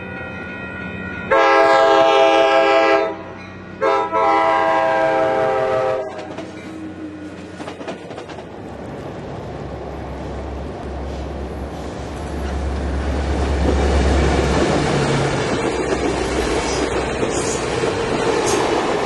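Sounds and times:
low rumble of approaching train: 0.0s - 19.0s
train coaches rolling on rails: 0.0s - 19.0s
locomotive air horn blasts: 1.3s - 6.4s.

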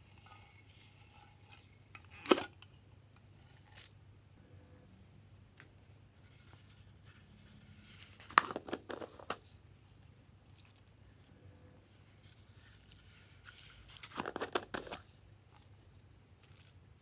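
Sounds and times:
plastic containers clicking and crinkling: 8.2s - 9.4s, 13.9s - 15.1s.

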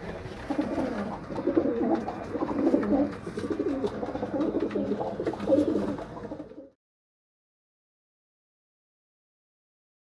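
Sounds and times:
pigeons cooing: 0.0s - 6.7s.

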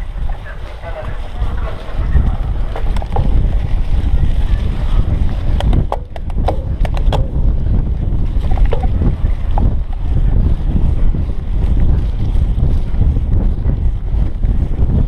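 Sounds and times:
bike rolling over rough grass: 0.0s - 15.0s
wind buffeting microphone: 0.0s - 15.0s
sharp clicks and rattles: 2.1s - 13.2s.

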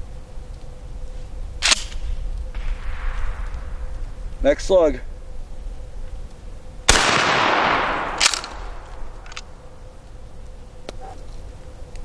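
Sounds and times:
shotgun blast with echo: 6.9s - 8.5s.

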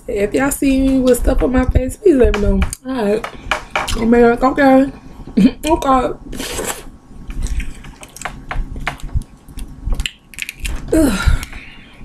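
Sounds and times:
shellfish shells cracking: 7.4s - 11.6s.

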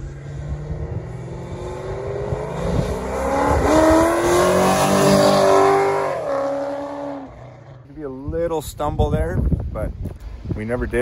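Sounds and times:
car engine accelerating hard: 0.0s - 7.8s.

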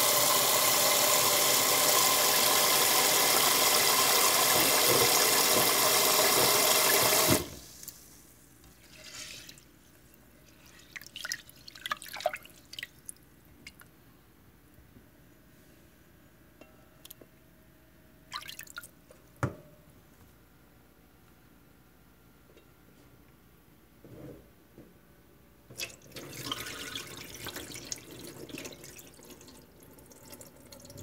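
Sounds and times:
tap water running into pot: 0.0s - 7.6s, 25.8s - 31.0s
water drips and splashes: 10.9s - 13.8s.

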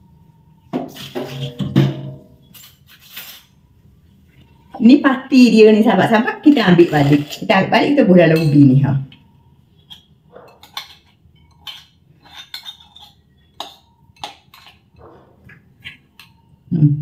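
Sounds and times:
spoon clinking against glass bowls: 7.0s - 9.0s, 9.8s - 15.1s.

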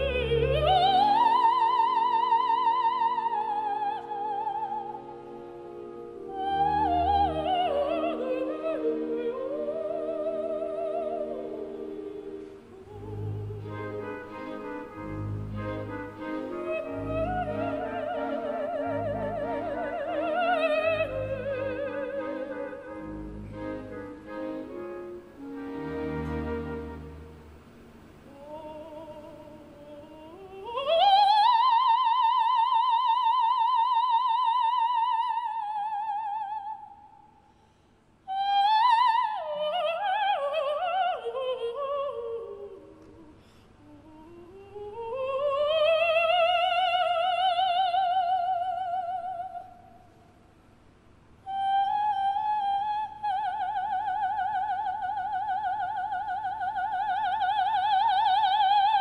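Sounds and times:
operatic soprano singing: 0.0s - 27.5s, 28.2s - 37.2s, 38.3s - 50.1s, 51.4s - 59.0s
soft accompaniment: 0.0s - 34.6s.

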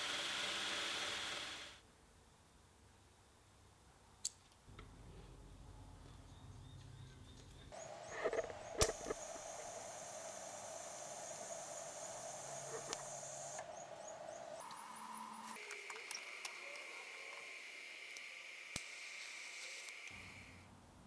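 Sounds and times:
welder electrical whine: 0.0s - 1.8s, 7.8s - 20.6s
sharp click: 8.2s - 9.2s.

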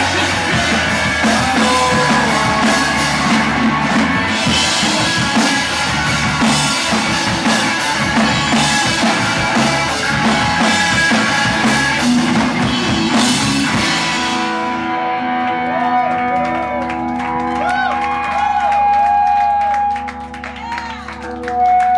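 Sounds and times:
drum kit with cymbals: 0.0s - 14.8s
bass guitar: 0.0s - 21.9s
electric guitar: 0.0s - 21.9s.

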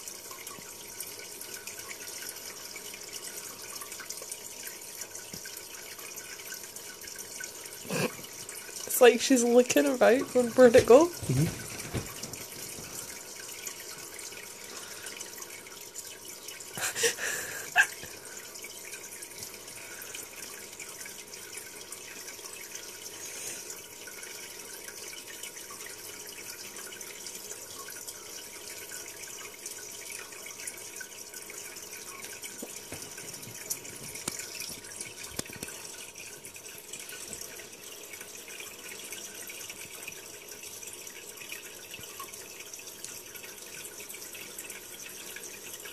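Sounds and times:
aquarium water bubbling: 0.0s - 45.9s.

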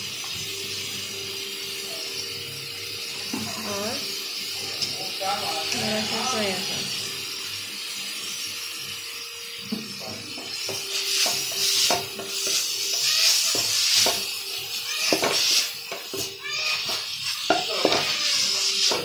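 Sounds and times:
food sizzling in oil: 0.0s - 19.0s
spatula scraping pan: 10.4s - 19.0s.

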